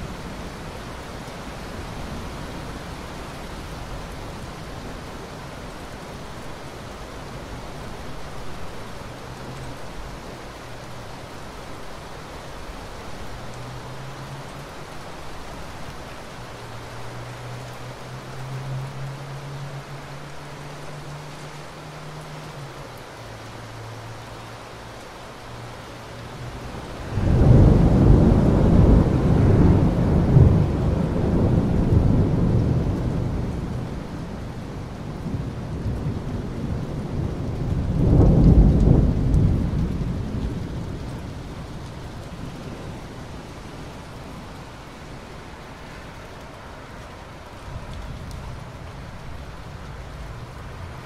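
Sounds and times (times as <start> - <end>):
steady rain: 0.0 - 51.0
thunder rumbling: 26.6 - 43.6.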